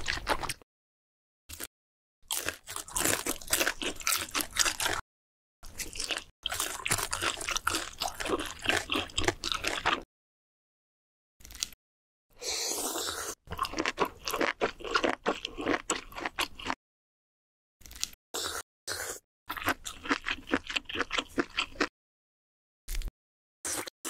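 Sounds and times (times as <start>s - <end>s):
crunchy chewing: 2.3s - 5.0s, 5.6s - 10.0s, 12.5s - 16.8s, 17.8s - 21.9s
noodles slurping: 12.4s - 15.2s.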